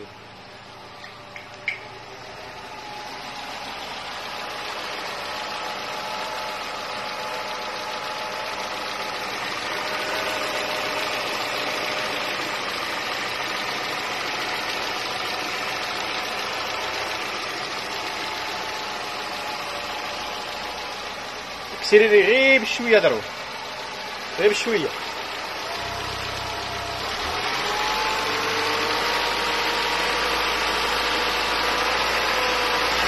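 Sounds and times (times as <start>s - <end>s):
car engine idling: 0.0s - 33.0s.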